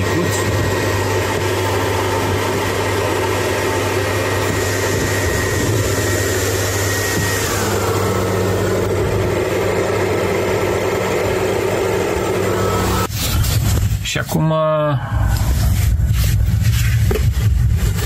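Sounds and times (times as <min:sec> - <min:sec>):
hair dryer running: 0:00.0 - 0:13.1
cooling fans whirring: 0:00.0 - 0:18.0
electrical whine: 0:00.0 - 0:18.0.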